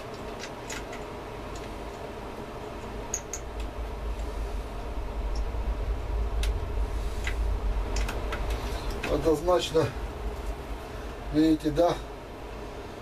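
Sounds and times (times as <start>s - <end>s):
hands clicking and tapping wiring: 0.0s - 2.1s, 7.2s - 9.2s
low steady rumble: 0.0s - 13.0s.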